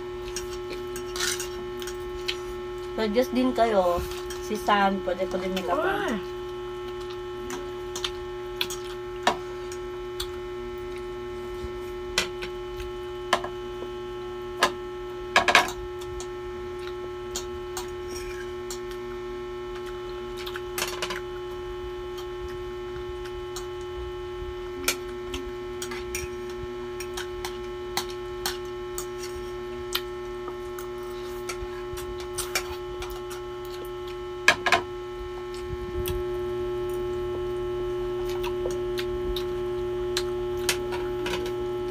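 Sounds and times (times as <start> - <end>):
electrical hum: 0.0 - 41.9.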